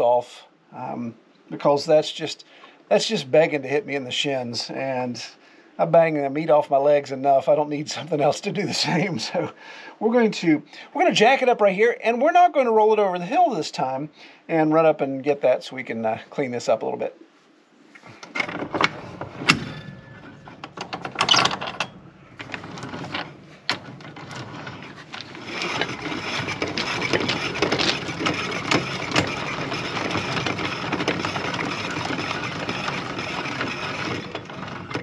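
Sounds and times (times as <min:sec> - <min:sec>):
jack cranking clicking and grinding: 0:18.2 - 0:35.0
sharp knocks: 0:18.6 - 0:21.9.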